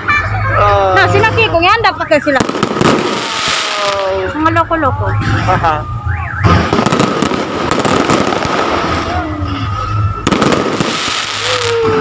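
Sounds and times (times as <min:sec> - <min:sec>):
fireworks bangs and crackling: 0:02.0 - 0:04.6, 0:06.3 - 0:12.0.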